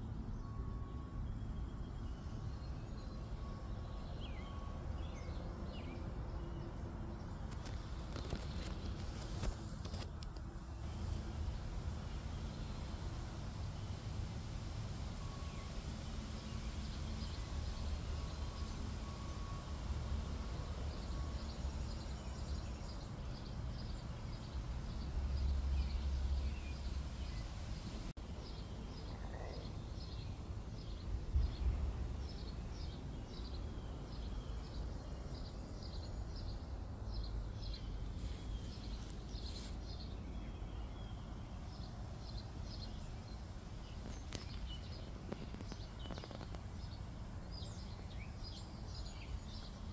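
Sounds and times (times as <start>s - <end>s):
steady low rumble: 6.1s - 40.8s.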